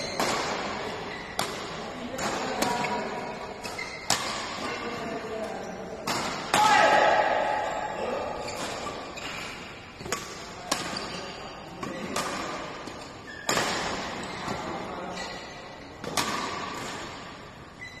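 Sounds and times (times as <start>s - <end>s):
rackets hitting shuttlecock: 0.0s - 4.9s, 6.0s - 7.6s, 8.4s - 14.7s, 16.0s - 17.5s.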